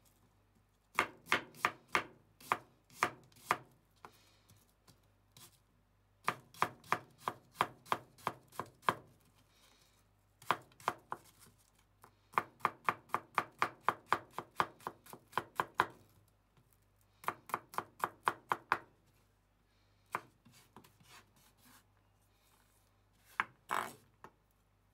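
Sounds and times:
knife chopping on cutting board: 1.0 - 3.6, 6.2 - 9.0.

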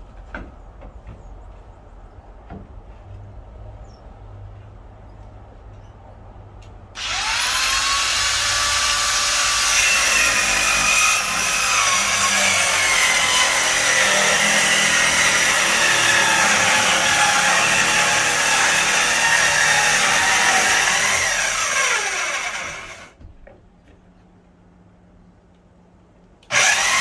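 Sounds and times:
circular saw cutting plywood: 7.0 - 23.2, 26.5 - 27.0.

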